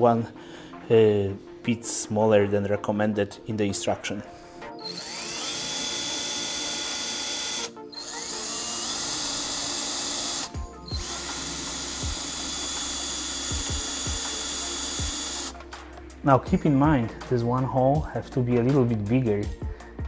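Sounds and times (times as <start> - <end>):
cordless drill whining: 4.8 - 15.6.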